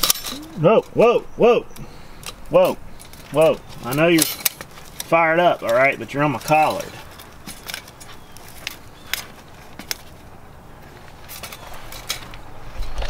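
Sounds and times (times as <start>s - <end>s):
wire cage trap rattling: 0.0s - 0.5s, 2.2s - 10.2s.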